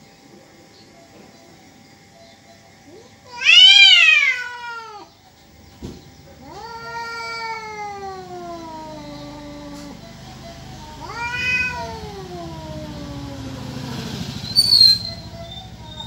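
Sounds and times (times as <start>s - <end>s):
cats yowling: 2.9s - 5.2s, 6.3s - 16.0s.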